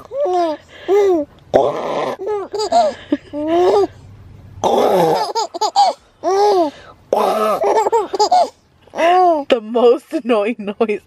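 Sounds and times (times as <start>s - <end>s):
baby giggling: 0.1s - 4.0s, 4.6s - 9.4s.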